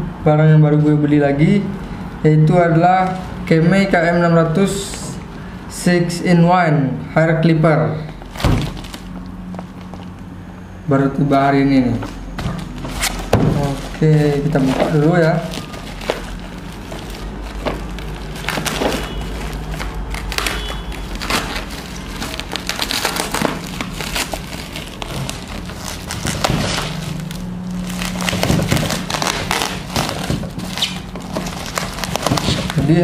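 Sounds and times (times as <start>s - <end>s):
bubble wrap crinkling: 8.0s - 10.3s, 12.0s - 33.0s.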